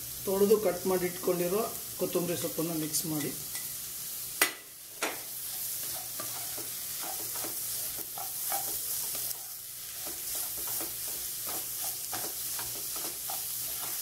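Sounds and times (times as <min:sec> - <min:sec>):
sizzle of frying: 0:00.0 - 0:14.0
spatula scraping a pan: 0:05.4 - 0:14.0.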